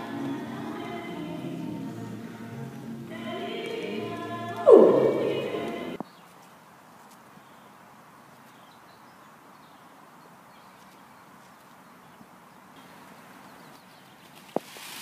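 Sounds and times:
distant birds chirping: 0:04.7 - 0:06.3
faint hiss of open air: 0:05.3 - 0:15.0.

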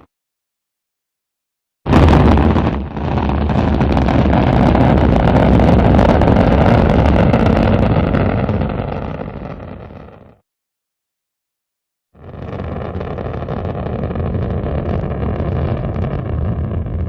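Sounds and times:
rocket engine rumble: 0:01.9 - 0:10.4, 0:12.2 - 0:17.0.

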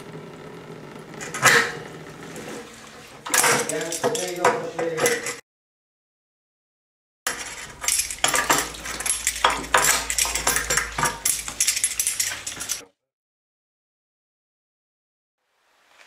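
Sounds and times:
metallic clinking and clanking radiator: 0:00.8 - 0:05.4, 0:07.3 - 0:12.8.

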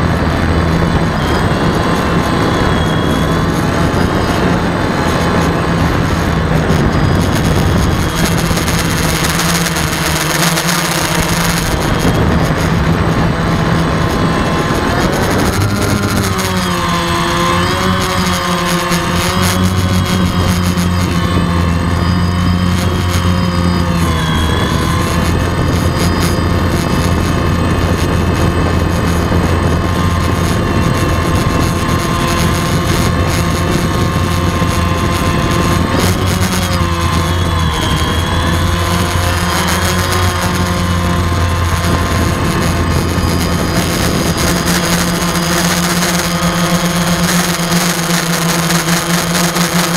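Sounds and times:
drone propellers buzzing: 0:00.0 - 0:49.9.

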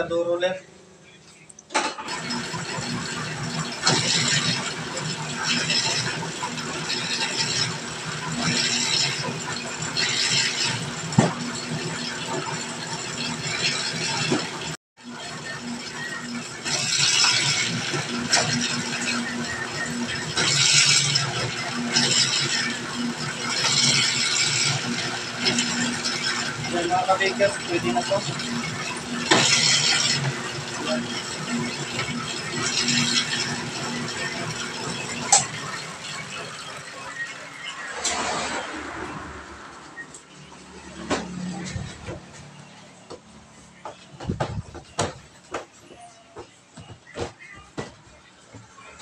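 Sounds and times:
dough roller mechanical hum: 0:01.8 - 0:49.0
dough roller clicks: 0:02.1 - 0:37.4.

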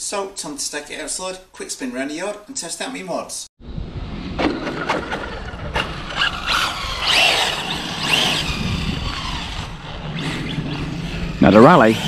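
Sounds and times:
rc car motor whining: 0:05.0 - 0:12.0.

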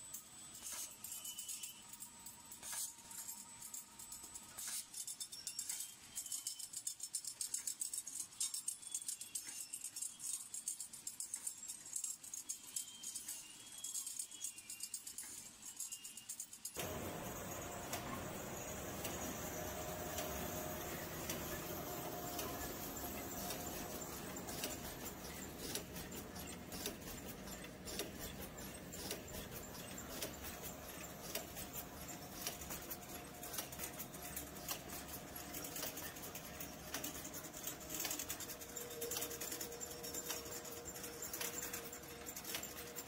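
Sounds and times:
machine hum and whine: 0:16.8 - 0:43.0.

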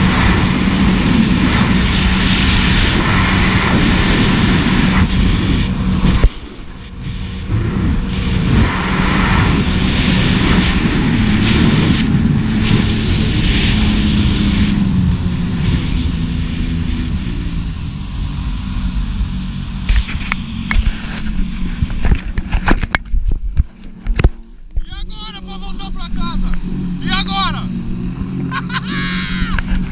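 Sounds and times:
water rushing: 0:00.0 - 0:22.9
water splashing: 0:00.0 - 0:22.9
wind on microphone: 0:00.0 - 0:25.1
jet ski engine: 0:00.0 - 0:29.9.

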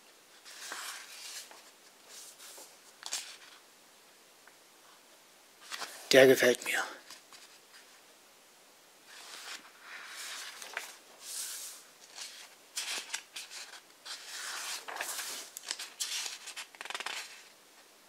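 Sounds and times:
book pages turning: 0:00.4 - 0:03.6, 0:05.6 - 0:06.0, 0:09.1 - 0:17.5
pages flicking: 0:09.2 - 0:17.5.

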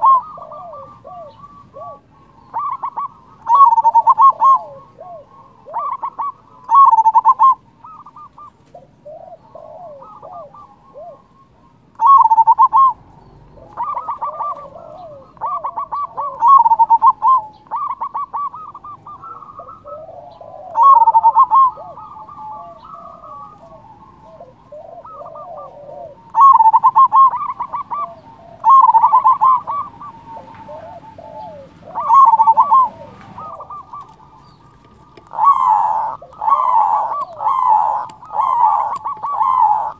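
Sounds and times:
dove cooing: 0:00.0 - 0:39.9.

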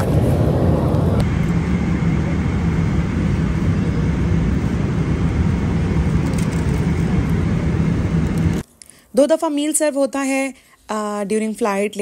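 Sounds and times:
airliner cabin drone: 0:00.0 - 0:08.7.

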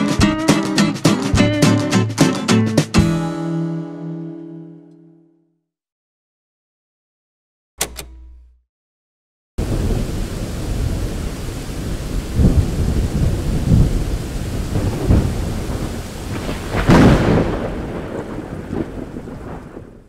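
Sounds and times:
rolling thunder: 0:09.6 - 0:20.0
steady rain: 0:09.6 - 0:20.0.

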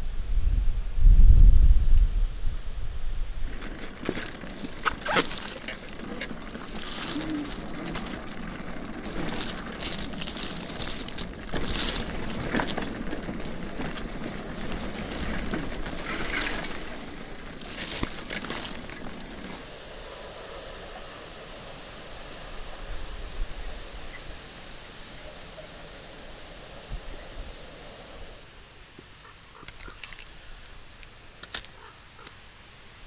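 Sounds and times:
steady outdoor hiss: 0:00.0 - 0:33.0
leaves and branches rustling: 0:01.8 - 0:33.0
bicycle knocks and rattles: 0:03.4 - 0:19.6.

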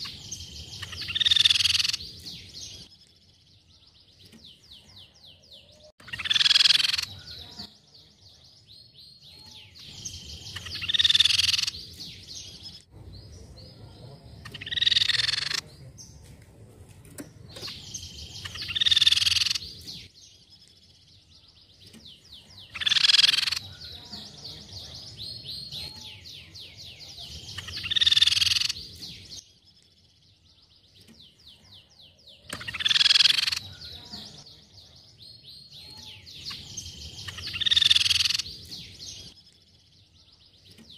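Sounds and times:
faint rapid bird trilling: 0:00.0 - 0:02.8, 0:04.2 - 0:07.8, 0:09.3 - 0:12.8, 0:13.5 - 0:15.8, 0:17.5 - 0:20.1, 0:21.4 - 0:29.4, 0:30.6 - 0:39.4
bird singing loud phrases: 0:00.0 - 0:40.9.

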